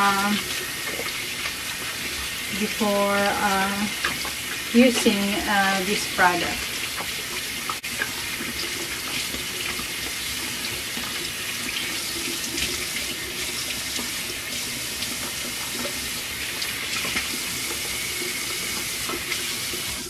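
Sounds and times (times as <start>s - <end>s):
tap running into sink: 6.6s - 20.0s.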